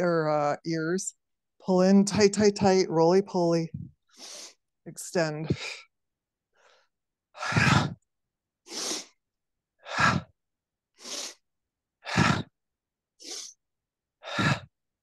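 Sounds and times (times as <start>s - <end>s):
woman breathing hard: 14.2s - 14.7s.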